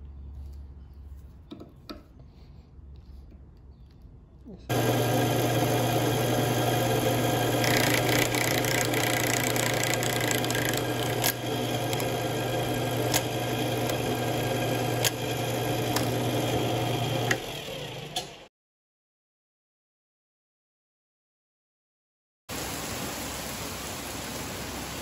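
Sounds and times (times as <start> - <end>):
drill press motor hum: 4.7 - 18.5.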